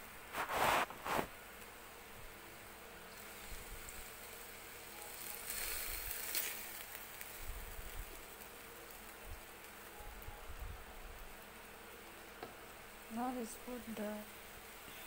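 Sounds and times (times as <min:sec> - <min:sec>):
steady hum: 0:00.0 - 0:15.0
spatula scraping a wok: 0:00.3 - 0:01.3
sauce simmering in a wok: 0:00.8 - 0:13.2.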